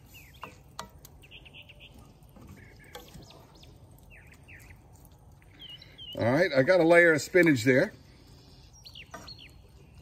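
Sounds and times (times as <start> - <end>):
spatula tapping and scraping skillet: 0.0 - 1.3, 2.0 - 3.6, 9.0 - 9.6
birds chirping: 0.0 - 10.0.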